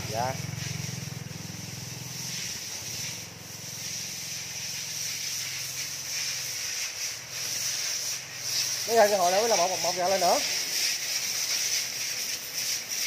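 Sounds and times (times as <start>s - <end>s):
motorcycle engine running low: 0.0s - 5.8s
steady high hiss: 0.0s - 13.0s.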